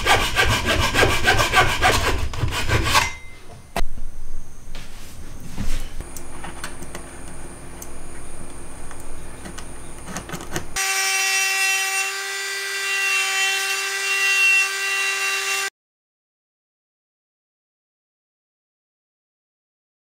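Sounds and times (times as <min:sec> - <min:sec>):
hand tool scratching wood: 0:00.0 - 0:03.2.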